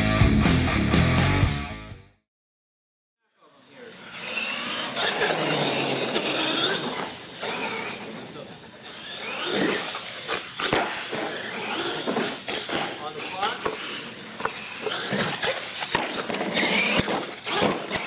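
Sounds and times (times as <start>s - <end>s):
toy truck motor whining: 3.6s - 18.0s
tyres running on concrete: 4.2s - 18.0s.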